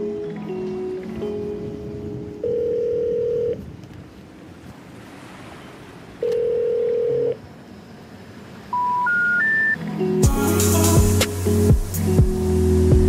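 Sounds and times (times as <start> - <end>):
telephone ringback tone: 1.3 - 3.7, 6.2 - 7.4, 8.7 - 9.9
rising telephone beeps: 2.4 - 3.6, 6.2 - 7.4, 8.7 - 9.8.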